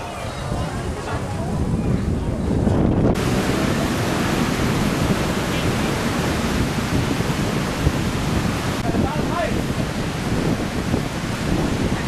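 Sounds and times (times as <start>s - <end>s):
wind and surf rushing: 0.0s - 12.0s.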